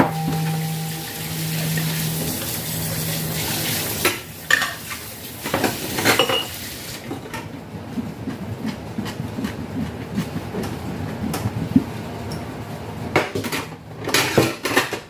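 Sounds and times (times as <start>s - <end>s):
tap water running: 0.0s - 7.2s
dishes clinking and knocking: 4.0s - 6.5s.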